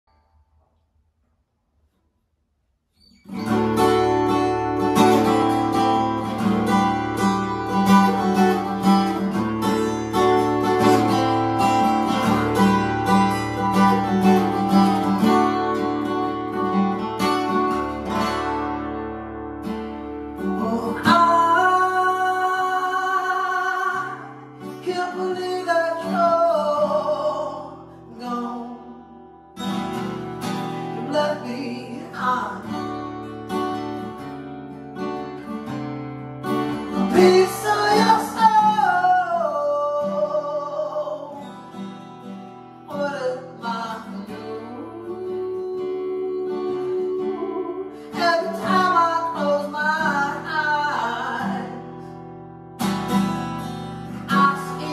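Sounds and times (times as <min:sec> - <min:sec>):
acoustic guitar: 0:00.0 - 0:54.9
man singing: 0:20.4 - 0:29.2, 0:30.8 - 0:33.0, 0:36.8 - 0:41.6, 0:42.9 - 0:52.1, 0:54.1 - 0:54.9.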